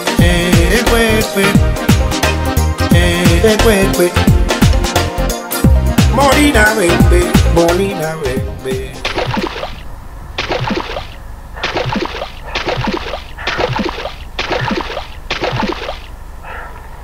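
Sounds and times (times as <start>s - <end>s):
paddle strokes splashing in water: 9.0s - 9.8s.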